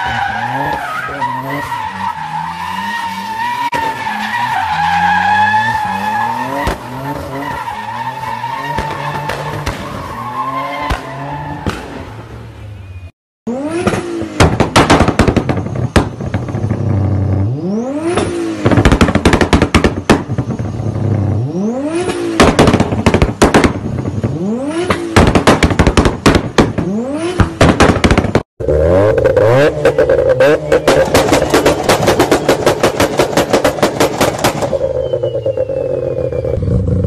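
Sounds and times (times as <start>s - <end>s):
exhaust pops and bangs: 6.5s - 7.6s, 8.6s - 12.0s, 13.8s - 17.0s, 18.1s - 20.8s, 22.0s - 28.5s, 29.7s - 35.6s
car engine revving: 28.6s - 37.0s.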